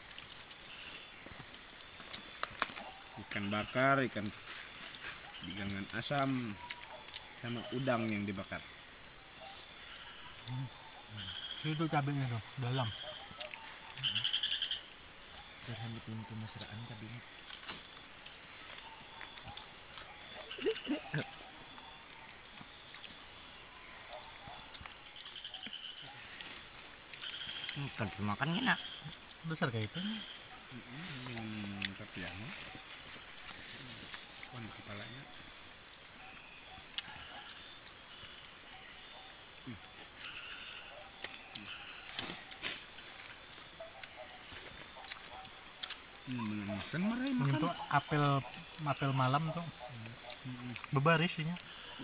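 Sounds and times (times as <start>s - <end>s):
chorus of night insects: 0.0s - 52.0s
low croak-like calls: 9.2s - 17.5s, 18.5s - 35.4s, 36.2s - 52.0s.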